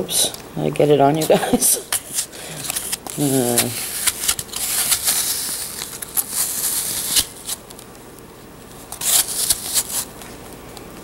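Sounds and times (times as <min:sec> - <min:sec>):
spoon scraping apple: 0:01.2 - 0:07.6.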